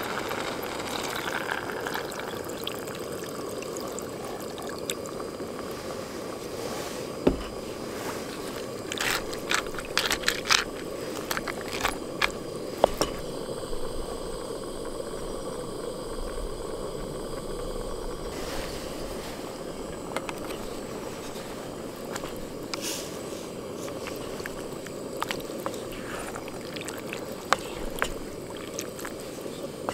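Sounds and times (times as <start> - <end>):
utensil scraping metal pot: 7.4 - 13.2.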